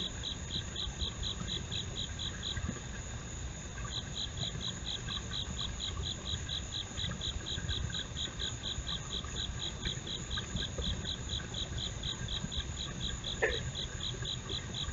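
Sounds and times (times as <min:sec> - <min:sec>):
high insect drone: 0:00.0 - 0:14.9
insects chirping: 0:00.0 - 0:14.9.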